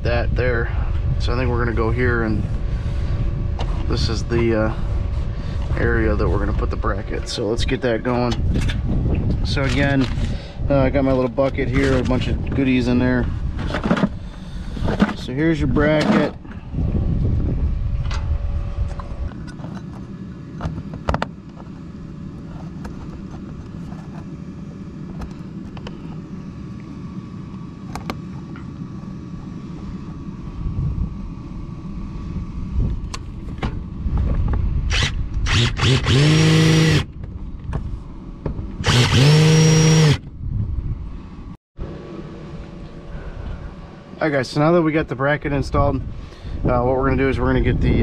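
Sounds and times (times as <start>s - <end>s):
cordless drill driving screws: 34.9s - 37.0s, 38.8s - 40.2s.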